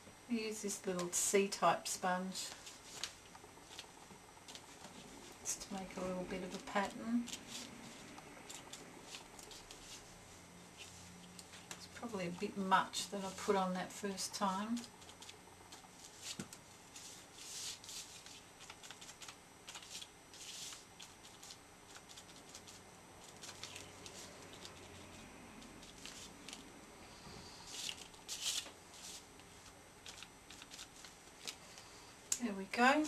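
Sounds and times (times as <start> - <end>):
sponge dabbing paint on paper: 14.6 - 26.6.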